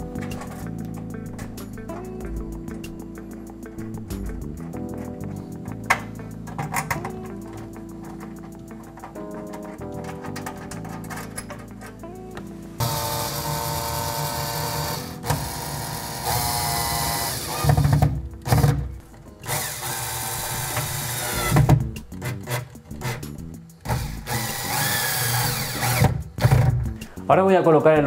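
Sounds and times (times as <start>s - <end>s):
power screwdriver driving screws: 12.8s - 18.8s, 19.5s - 21.7s, 23.9s - 26.6s.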